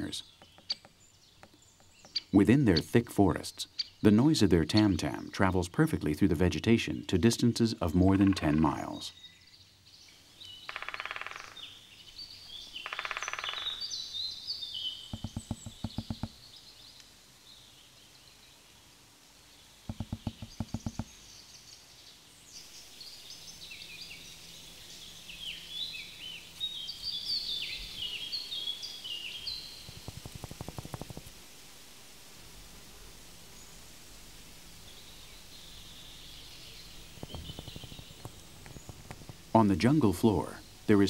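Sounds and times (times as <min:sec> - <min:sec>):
woodpecker drumming on wood: 0:00.0 - 0:03.0, 0:10.7 - 0:11.6, 0:12.8 - 0:13.8, 0:15.0 - 0:16.5, 0:19.9 - 0:21.2, 0:29.5 - 0:31.4, 0:36.9 - 0:40.9
small birds chirping: 0:00.0 - 0:31.3, 0:34.4 - 0:41.0.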